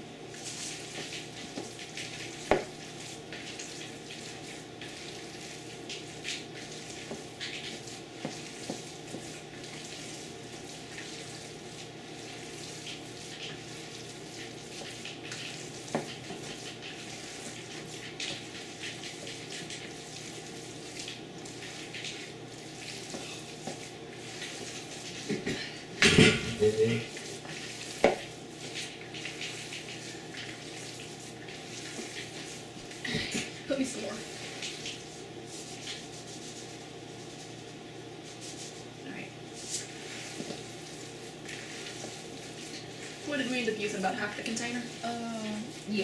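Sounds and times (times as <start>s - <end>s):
hands squishing moist mixture: 0.3s - 25.3s, 39.5s - 46.0s.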